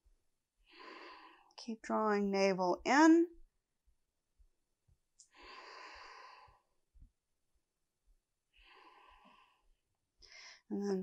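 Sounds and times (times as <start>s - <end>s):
woman breathing softly: 0.6s - 1.6s, 5.2s - 6.8s, 8.5s - 10.7s.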